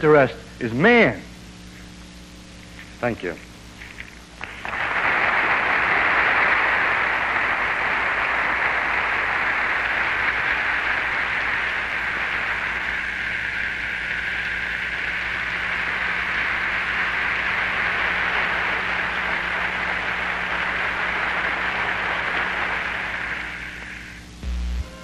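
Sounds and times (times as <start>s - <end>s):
audience applauding: 4.4s - 24.2s.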